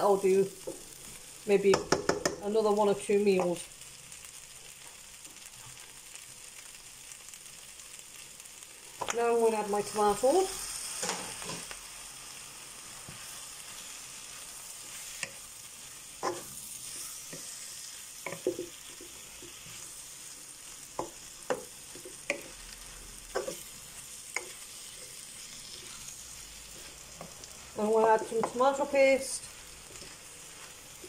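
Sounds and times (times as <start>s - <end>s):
vegetables and meat sizzling in pan: 0.0s - 31.0s
wooden spoon knocking against pan: 1.7s - 2.4s.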